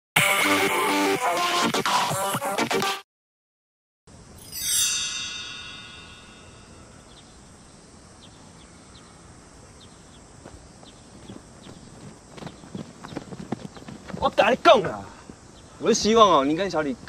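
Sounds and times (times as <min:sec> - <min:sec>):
faint outdoor hiss: 0:04.1 - 0:17.0
bright descending chime run: 0:04.4 - 0:07.0
soft bird chirps: 0:05.5 - 0:14.2, 0:15.2 - 0:17.0.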